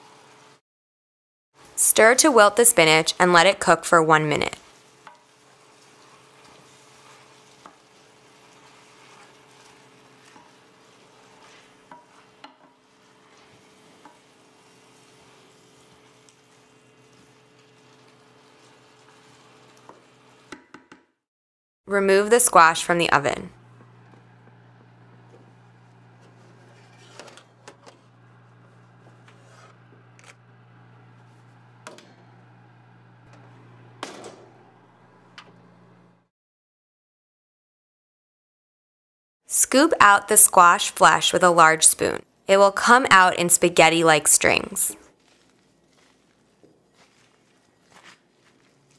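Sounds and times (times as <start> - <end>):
faint sizzle: 4.2 - 20.5, 22.8 - 36.2
wooden spoon stirring sauce: 4.6 - 20.1, 23.6 - 31.6, 45.1 - 48.9
baking sheet scraping oven rack: 4.7 - 20.5, 23.7 - 36.2.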